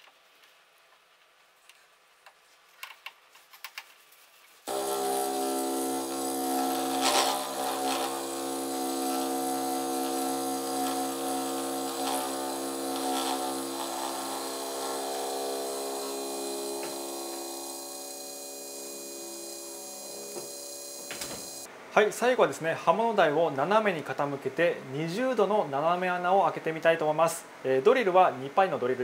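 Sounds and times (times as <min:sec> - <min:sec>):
metal cutting noise: 0:04.7 - 0:21.7
milling spindle whine: 0:04.7 - 0:21.7.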